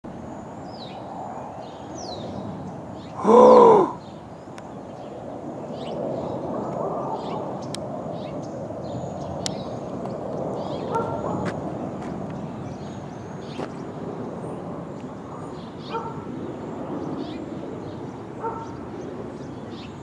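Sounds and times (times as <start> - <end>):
small birds chirping: 0.2 - 20.0
harsh bird call: 3.1 - 4.1.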